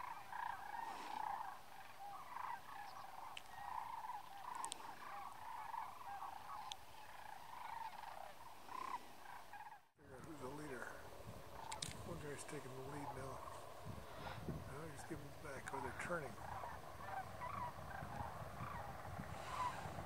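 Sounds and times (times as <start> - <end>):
cranes calling: 0.0 - 20.0
faint high ticks: 3.3 - 3.5, 4.2 - 4.8.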